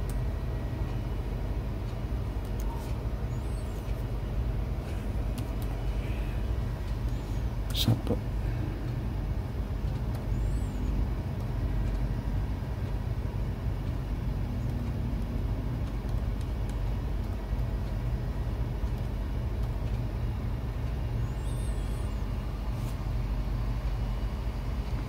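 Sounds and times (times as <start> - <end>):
low rumbling background noise: 0.0 - 25.0.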